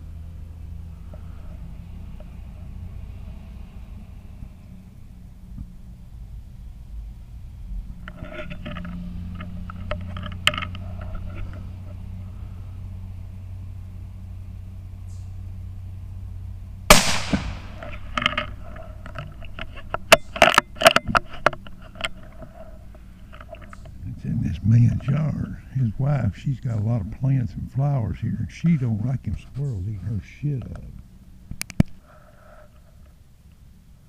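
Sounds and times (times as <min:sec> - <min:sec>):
low steady hum: 0:00.0 - 0:34.0
rifle clicks and knocks: 0:08.5 - 0:11.2, 0:17.0 - 0:22.5
rifle shot: 0:16.9 - 0:17.9.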